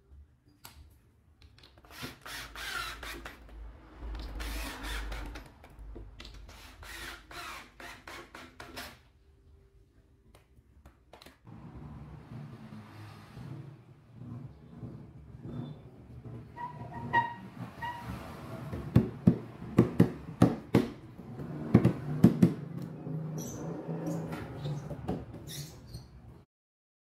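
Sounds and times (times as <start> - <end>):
cordless drill driving screws: 1.8 - 3.5.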